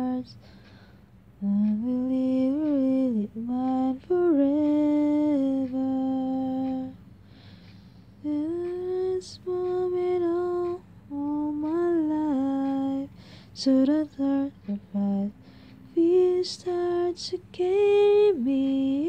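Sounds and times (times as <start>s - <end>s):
woman humming a slow melody: 0.0s - 0.4s, 1.4s - 7.0s, 8.2s - 19.0s.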